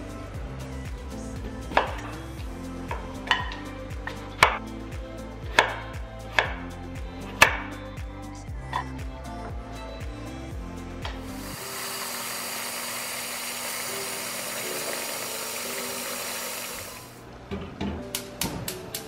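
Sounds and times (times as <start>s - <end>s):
soft background music: 0.0s - 12.1s, 13.8s - 19.0s.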